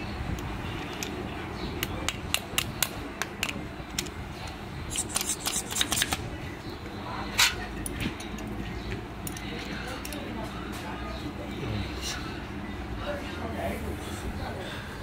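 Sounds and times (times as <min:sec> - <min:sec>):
sharp metallic clicks: 0:01.8 - 0:06.3.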